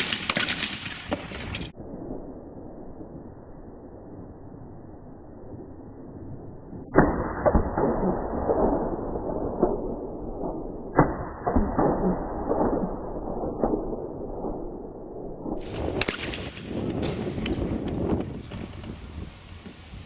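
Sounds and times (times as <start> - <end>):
muffled shotgun shot: 0.0 - 1.7, 15.6 - 18.0
wind on microphone: 15.6 - 20.0.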